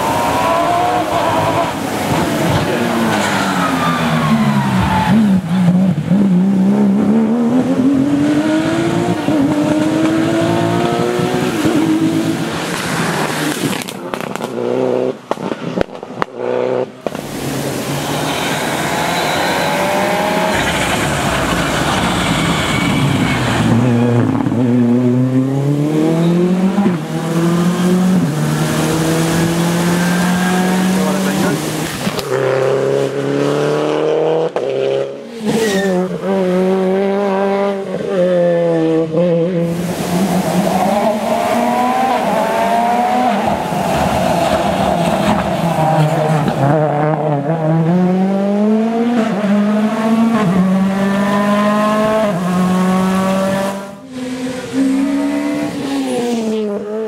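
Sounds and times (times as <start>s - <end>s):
rally car engine accelerating: 0.0s - 15.4s, 18.0s - 57.0s
rally car approaching and braking: 0.0s - 57.0s.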